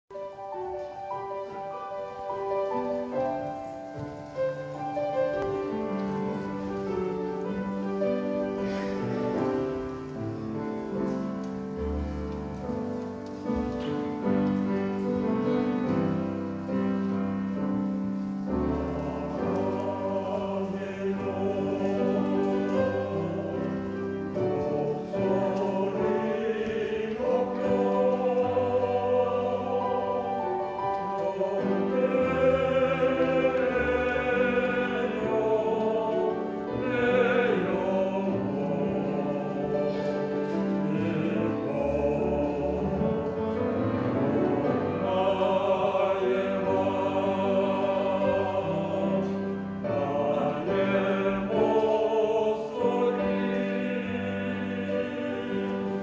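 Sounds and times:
instrumental accompaniment: 0:00.1 - 0:56.0
male vocal quartet singing: 0:18.7 - 0:56.0.

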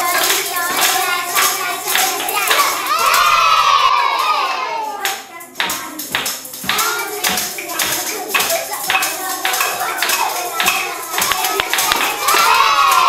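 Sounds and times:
children shout-singing: 0:00.0 - 0:13.0
maracas and tambourines shaking: 0:00.0 - 0:13.0.

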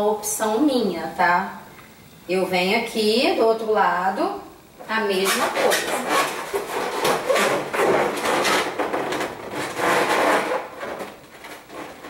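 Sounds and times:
balloons rubbing together: 0:05.0 - 0:12.0.

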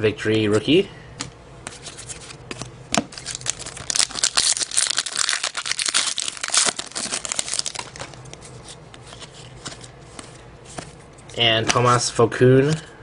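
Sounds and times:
foil wrapper tearing and crinkling: 0:03.1 - 0:08.2.

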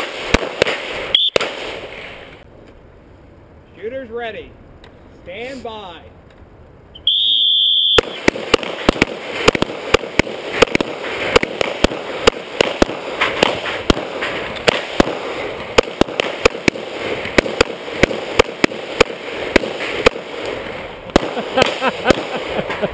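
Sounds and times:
rapid pistol fire: 0:00.0 - 0:01.9, 0:08.0 - 0:20.5, 0:21.1 - 0:22.6.

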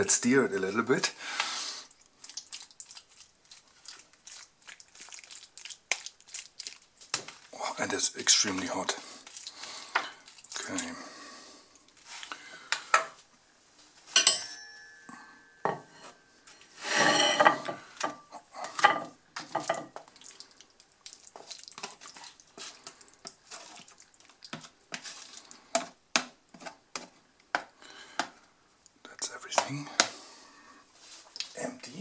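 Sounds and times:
spoon clinking on plate: 0:14.2 - 0:16.1.

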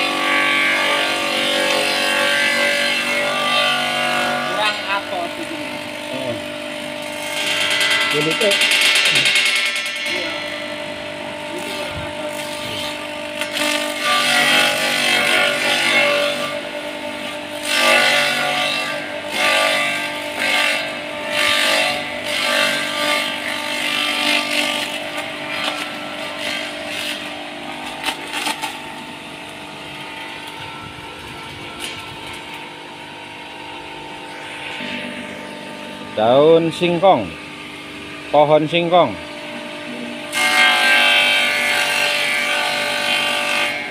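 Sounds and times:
forage shredder motor running: 0:00.0 - 0:43.9
chopping and rattling: 0:07.5 - 0:10.2.

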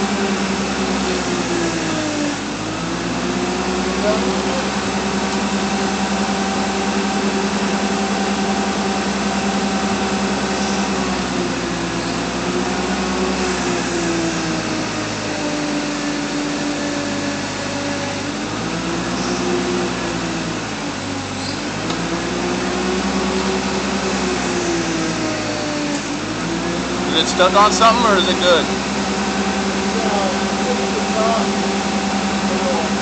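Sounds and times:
forklift engine droning: 0:00.0 - 0:33.0.

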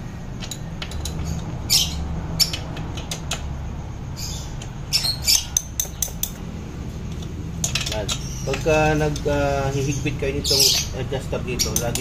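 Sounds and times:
wrench clinking and scraping on bolt: 0:00.3 - 0:01.4, 0:05.3 - 0:06.5, 0:07.1 - 0:09.6, 0:11.6 - 0:12.0.

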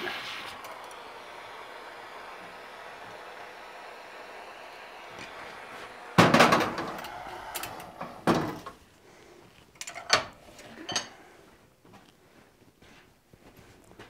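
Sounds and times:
torch shut-off burst: 0:00.0 - 0:08.8
torch flame hissing: 0:00.0 - 0:09.0.

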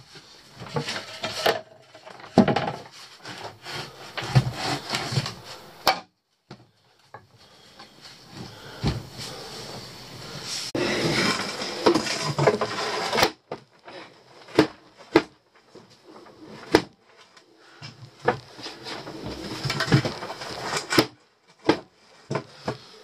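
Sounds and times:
wooden boards scraping: 0:00.0 - 0:05.9, 0:08.4 - 0:22.9.

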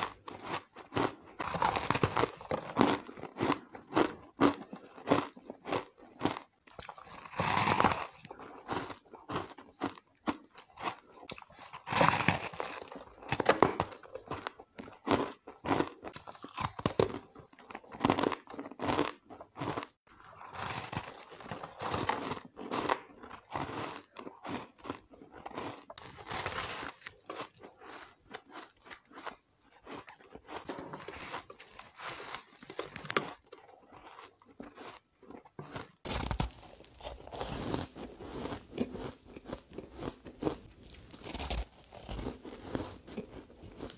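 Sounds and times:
crunching ice: 0:00.0 - 0:43.9.

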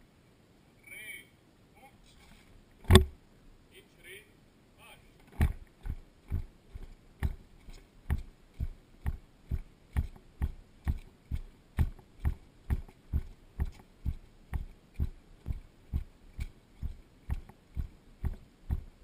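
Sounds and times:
marching footsteps on pavement: 0:05.4 - 0:19.0.

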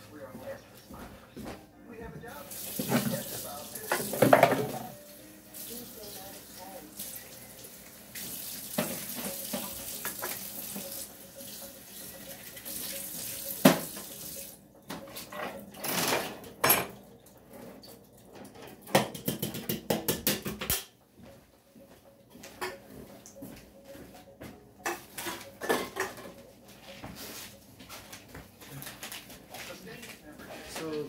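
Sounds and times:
water running from tap: 0:02.4 - 0:14.6
dishes clinking: 0:02.8 - 0:05.0, 0:08.7 - 0:20.8, 0:22.2 - 0:29.2.

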